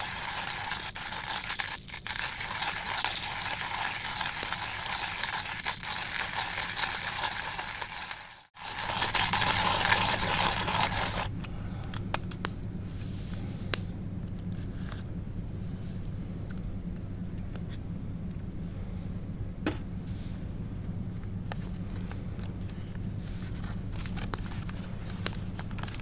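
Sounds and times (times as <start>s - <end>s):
hand coffee grinder grinding: 0.0s - 11.3s, 23.4s - 26.0s.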